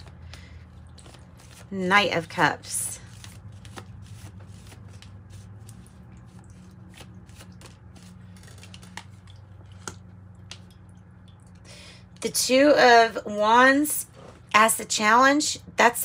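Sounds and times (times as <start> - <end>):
cards being shuffled: 0.0 - 10.0
faint low hum: 0.0 - 15.9.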